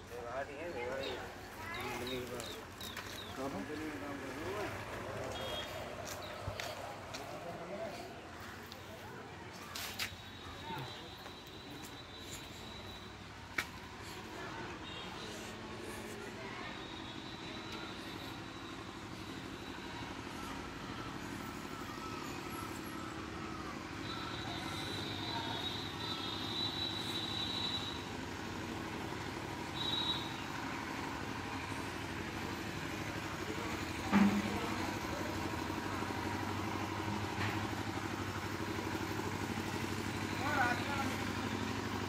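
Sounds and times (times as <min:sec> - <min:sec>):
thin high whistle-like tone: 0:09.9 - 0:13.2, 0:21.0 - 0:28.1, 0:29.7 - 0:30.5.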